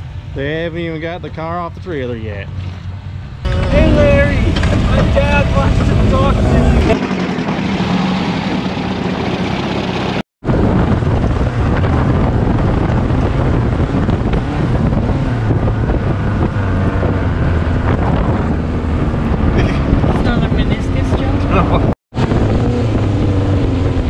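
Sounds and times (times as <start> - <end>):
wind buffeting microphone: 3.4 - 7.2, 9.1 - 24.0
dune buggy engine running: 3.4 - 24.0.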